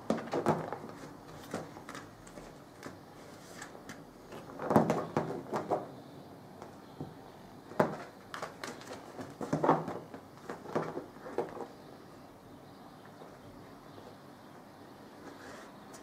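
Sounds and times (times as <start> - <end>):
cat knocking and scuffing toy: 7.7 - 11.7.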